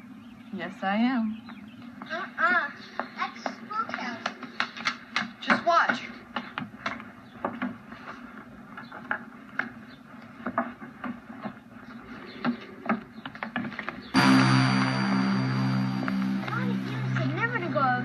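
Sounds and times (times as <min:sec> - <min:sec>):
low synthesizer chord: 0:14.2 - 0:18.0.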